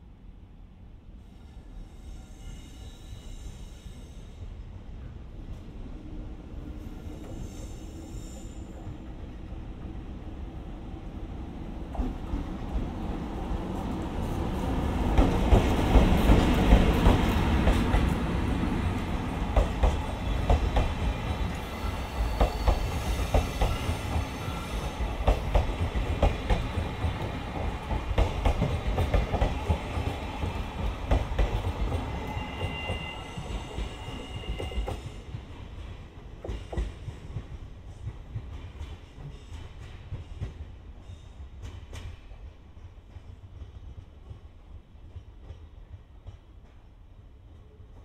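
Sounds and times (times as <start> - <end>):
electric locomotive passing: 0.7 - 48.0
train wheels clicking over rail joints: 19.4 - 40.8, 41.5 - 46.9.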